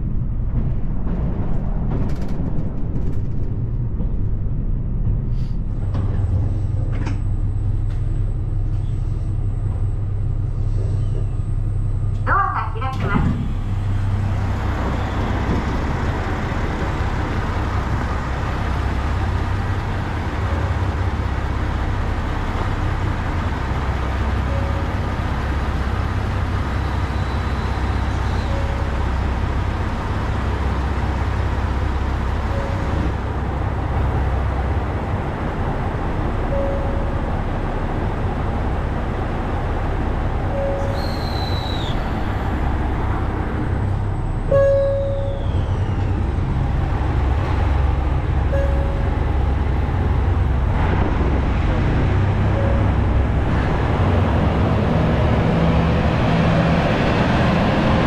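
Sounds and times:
diesel engine idling: 5.0s - 58.0s
faint short tone: 44.5s - 46.0s.

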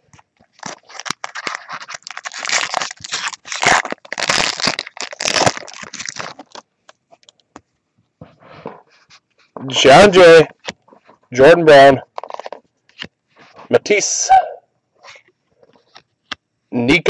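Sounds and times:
foil wrapper crinkling and tearing: 0.1s - 7.4s, 12.1s - 13.1s.

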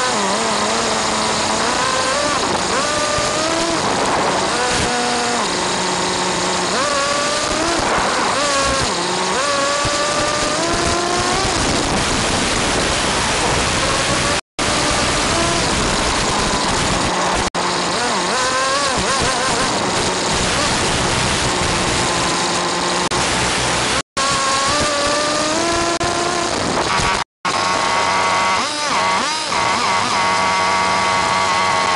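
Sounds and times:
small rc car engine revving: 0.0s - 31.9s.

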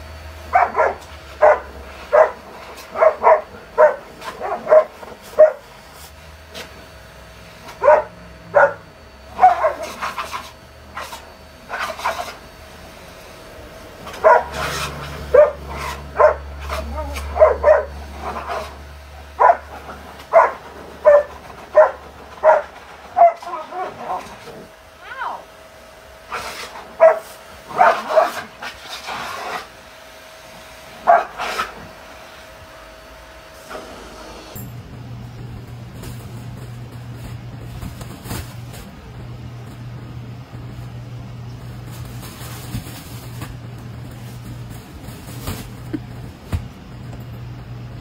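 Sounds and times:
large dog barking: 0.5s - 5.7s, 7.7s - 10.0s, 14.1s - 18.7s, 19.3s - 24.3s, 26.3s - 28.5s, 31.0s - 31.8s.

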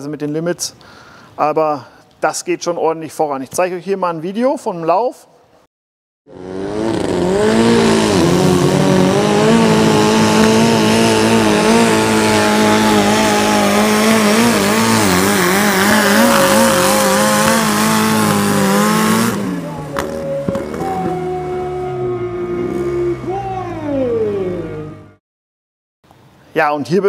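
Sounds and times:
tractor engine at full throttle: 6.3s - 21.8s.

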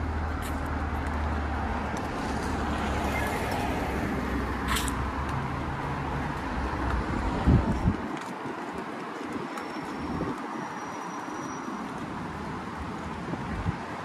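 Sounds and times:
hiss of passing vehicles: 0.0s - 7.7s.

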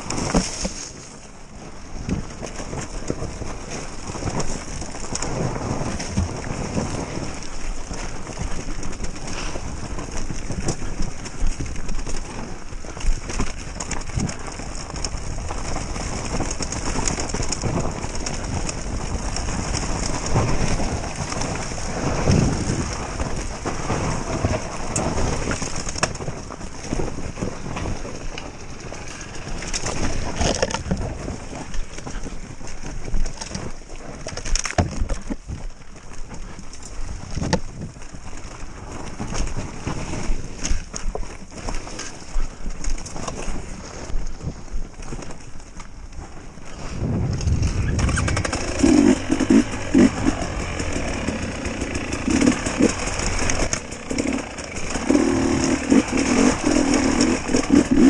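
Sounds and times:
rough rushing noise: 46.7s - 58.0s
motorcycle engine revving: 47.3s - 58.0s.

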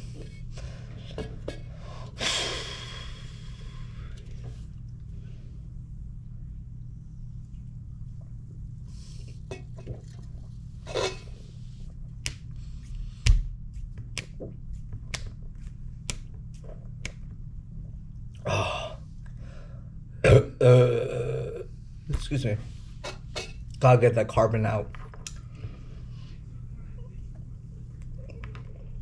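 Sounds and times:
man coughing: 20.2s - 21.6s.

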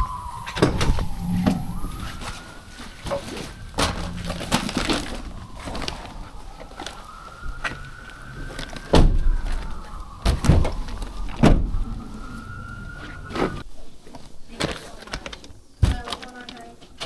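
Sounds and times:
siren wailing: 0.0s - 13.6s
van doors thumping shut: 8.9s - 9.6s, 10.2s - 11.8s.

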